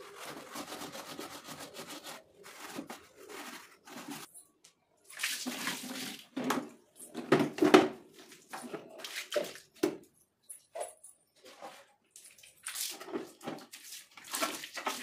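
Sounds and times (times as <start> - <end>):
scrubber rubbing on plastic: 0.0 - 4.3.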